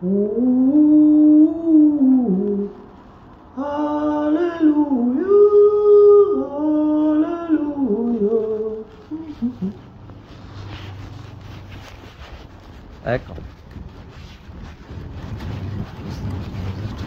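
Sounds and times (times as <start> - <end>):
person singing wordless melody: 0.0 - 2.9, 3.5 - 9.9.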